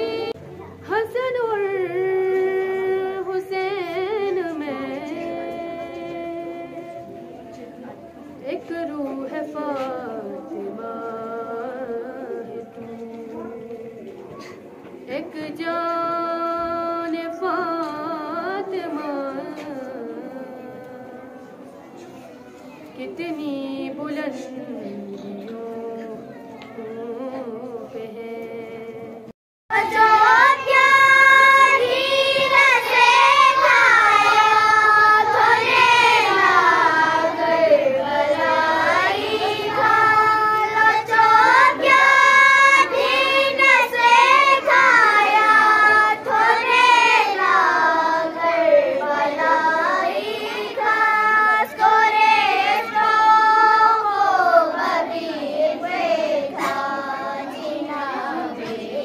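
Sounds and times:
girls singing into a microphone: 0.0 - 22.1, 22.9 - 59.0.

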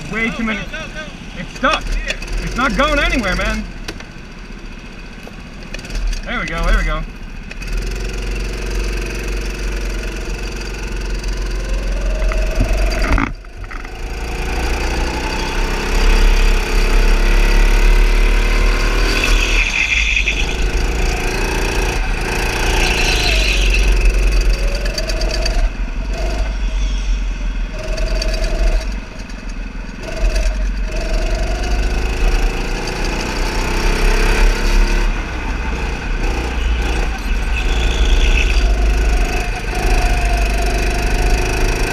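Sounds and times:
go-kart motor revving: 0.0 - 41.9
heavy low rumble: 9.9 - 15.2.

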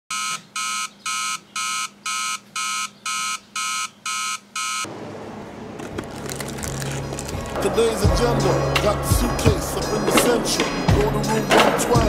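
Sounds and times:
alarm clock beeping: 0.1 - 4.9.

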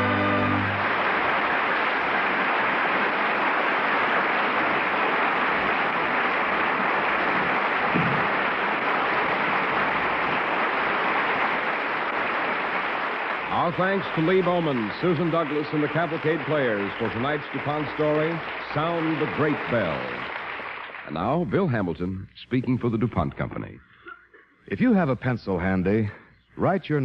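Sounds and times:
orchestra closing chord: 0.0 - 0.9
audience applauding: 0.0 - 21.8.

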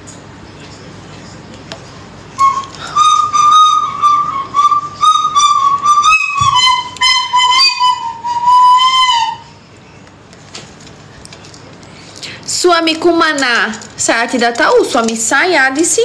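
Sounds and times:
cockatiel whistling: 2.4 - 9.6.

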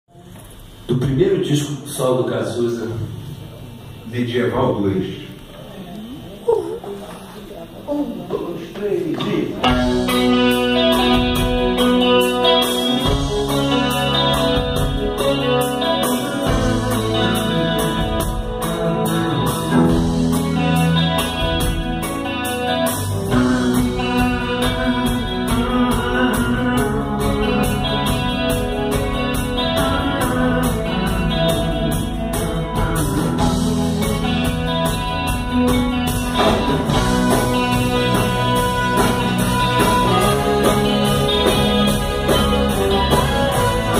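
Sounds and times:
live rock band playing: 9.4 - 43.9
saxophone: 35.5 - 43.9.

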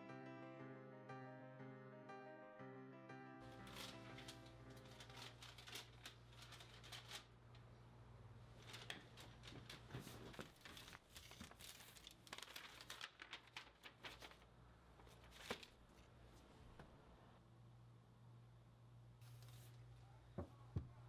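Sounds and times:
paper rustling and crinkling: 3.5 - 7.4, 8.5 - 16.5, 19.2 - 19.8.

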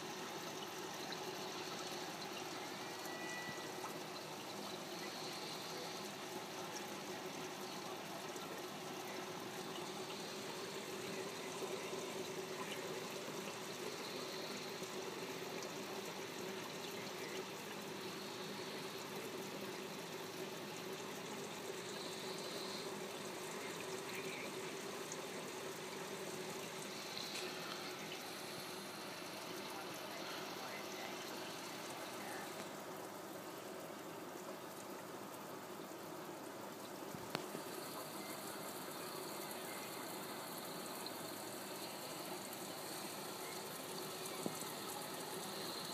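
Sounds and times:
trickle of moving water: 0.0 - 45.9.

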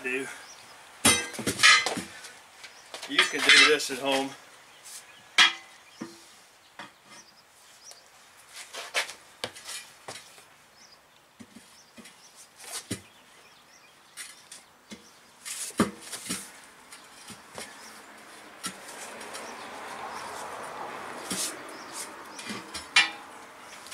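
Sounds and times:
tire irons scraping and knocking rim: 14.1 - 23.9.

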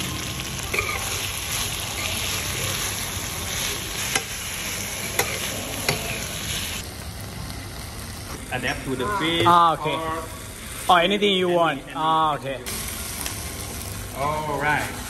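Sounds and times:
food sizzling in frying pan: 0.0 - 11.6, 12.7 - 15.0
metal spatula clinking on pan: 5.2 - 6.2.

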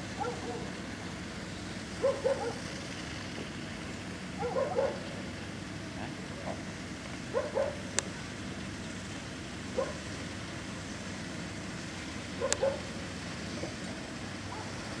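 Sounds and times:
outdoor background noise: 0.0 - 15.0
dog yelping: 0.2 - 0.7, 2.0 - 2.6, 4.4 - 5.0, 7.3 - 7.8, 12.4 - 12.9.

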